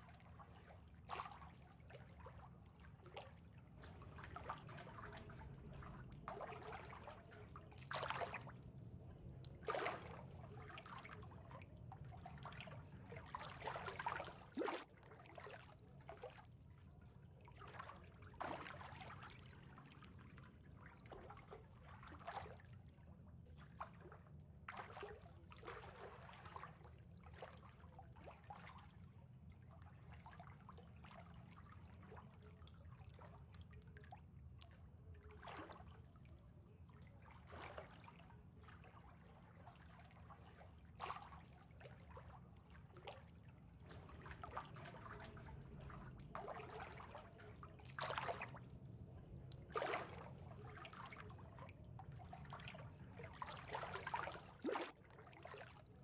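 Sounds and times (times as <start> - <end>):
water trickling and lapping: 0.0 - 56.0
small gurgling splashes: 0.1 - 8.7, 9.4 - 16.6, 17.4 - 20.2, 36.8 - 56.0
low steady hum: 2.1 - 14.6, 42.4 - 56.0.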